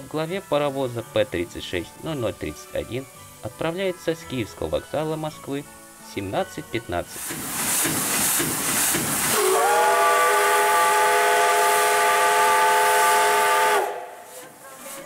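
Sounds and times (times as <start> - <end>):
steam hissing: 5.6 - 15.0
steam locomotive whistle blast: 9.3 - 14.3.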